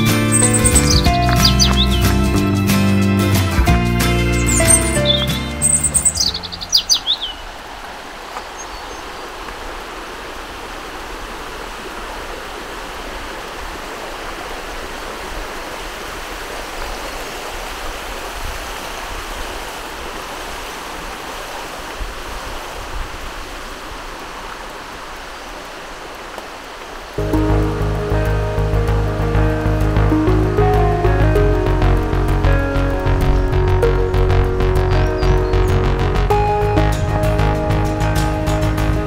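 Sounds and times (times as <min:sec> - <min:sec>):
creek water flowing: 0:00.0 - 0:39.0
bird chirps: 0:00.1 - 0:02.3, 0:04.3 - 0:07.5, 0:08.4 - 0:09.1, 0:35.0 - 0:35.8.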